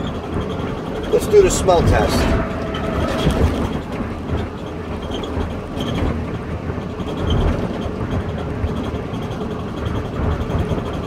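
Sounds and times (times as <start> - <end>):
air conditioning blowing: 0.0 - 11.0
low rumble: 0.2 - 5.7.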